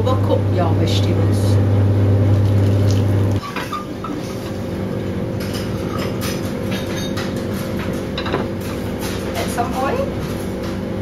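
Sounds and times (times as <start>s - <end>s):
low machine hum: 0.0s - 11.0s
cookware clinking: 5.4s - 10.7s.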